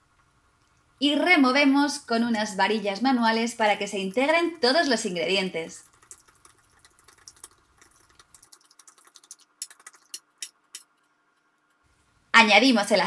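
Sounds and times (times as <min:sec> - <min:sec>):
whisk tapping plastic bowl: 0:05.8 - 0:10.9.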